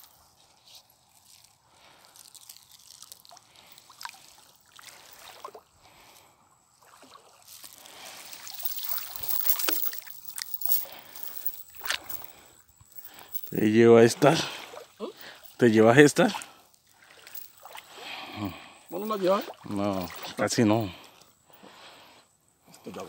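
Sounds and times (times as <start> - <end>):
water sloshing and splashing: 2.8 - 12.4, 14.4 - 15.5, 16.5 - 18.2, 19.0 - 21.2.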